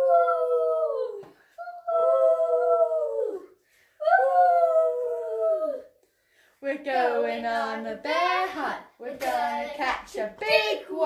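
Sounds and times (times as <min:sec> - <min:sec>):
person making woo wind noises: 0:00.0 - 0:05.9.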